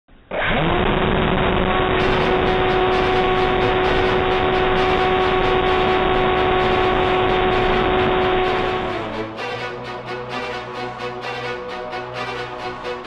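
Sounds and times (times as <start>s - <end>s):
electric motor whine: 0.6s - 9.8s
music with steady beat: 2.0s - 13.0s.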